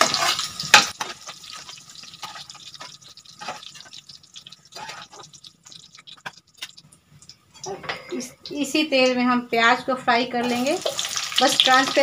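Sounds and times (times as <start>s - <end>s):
ladle in pan: 0.0s - 8.1s
oil crackling and sizzling: 0.0s - 9.8s, 10.4s - 12.0s.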